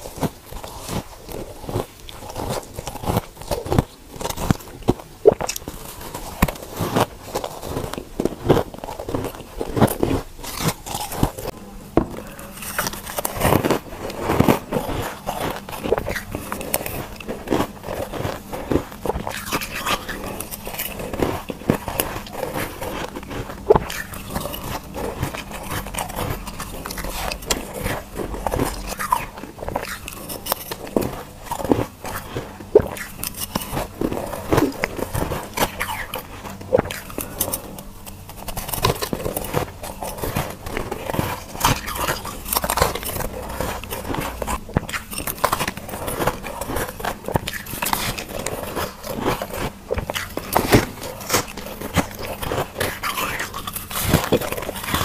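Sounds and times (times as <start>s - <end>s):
crunching shaved ice: 0.0s - 55.0s.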